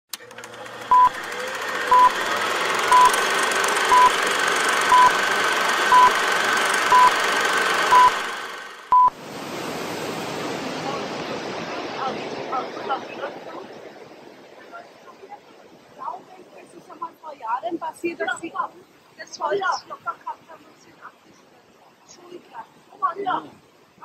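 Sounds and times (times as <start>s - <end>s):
short high beeps: 0.9s - 1.2s, 1.9s - 2.2s, 2.9s - 3.2s, 3.9s - 4.2s, 4.9s - 5.2s, 5.9s - 6.2s, 6.9s - 7.2s, 7.9s - 8.2s, 8.9s - 9.1s
river rushing through gorge: 9.2s - 14.8s.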